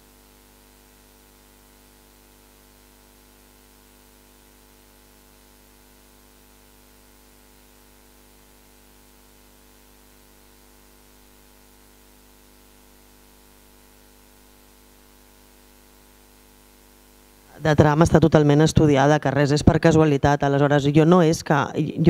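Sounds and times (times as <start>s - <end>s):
faint electrical hum: 0.0s - 22.0s.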